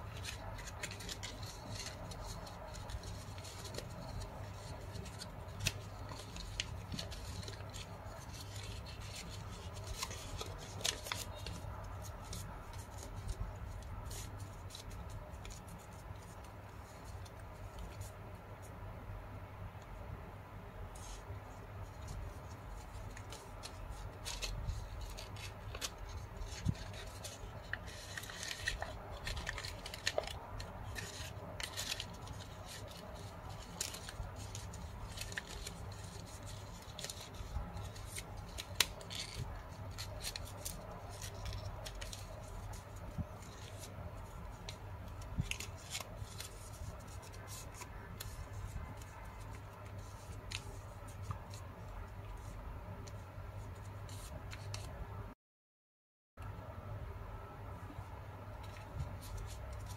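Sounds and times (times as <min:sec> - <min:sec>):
small paper crackles and clicks: 0:00.0 - 0:18.1, 0:22.0 - 0:51.6
paper crinkling and rustling: 0:00.0 - 0:18.4, 0:20.9 - 0:54.9, 0:58.5 - 0:59.9.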